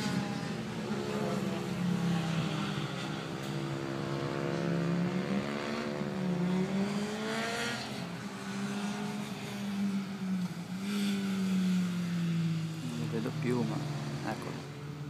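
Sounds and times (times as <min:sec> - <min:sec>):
racing motorcycle engines: 0:00.0 - 0:15.0.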